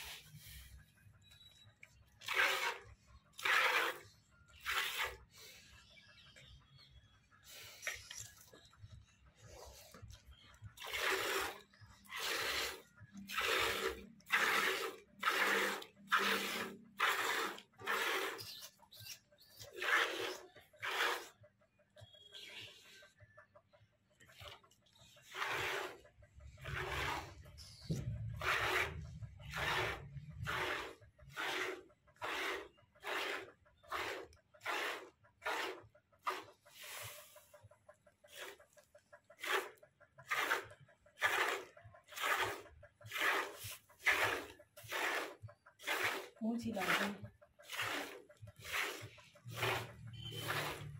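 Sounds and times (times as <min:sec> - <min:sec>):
milk squirting into bucket: 0:02.0 - 0:05.3, 0:09.9 - 0:19.1, 0:19.7 - 0:21.4, 0:24.3 - 0:37.4, 0:38.3 - 0:38.8, 0:39.4 - 0:50.9.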